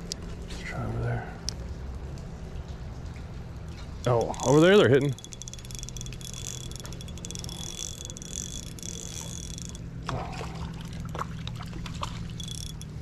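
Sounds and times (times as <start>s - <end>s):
creek water flowing: 3.7s - 13.0s
fishing reel whirring and ticking: 4.0s - 11.4s, 12.0s - 13.0s.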